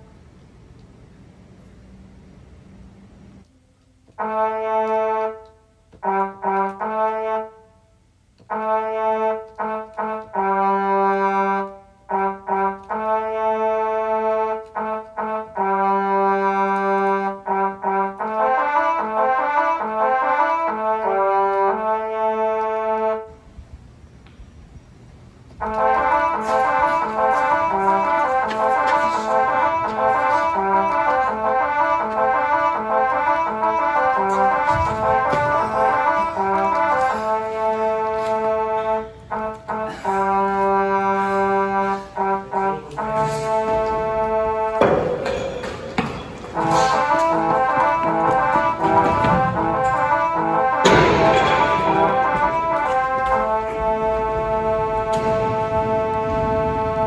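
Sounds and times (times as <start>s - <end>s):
brass background music: 4.0s - 23.6s, 25.5s - 57.0s.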